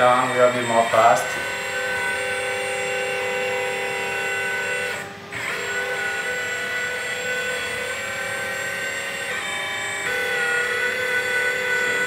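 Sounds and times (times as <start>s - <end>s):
hydraulic pump whining: 0.0s - 12.0s.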